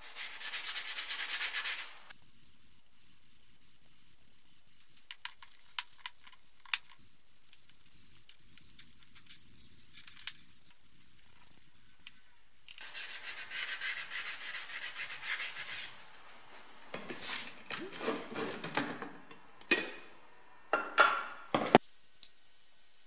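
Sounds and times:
sanding pad rubbing metal: 12.8 - 16.0.

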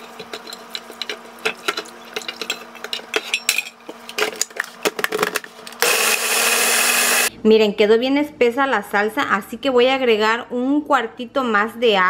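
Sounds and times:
chiles scraping and clattering: 0.0 - 5.8.

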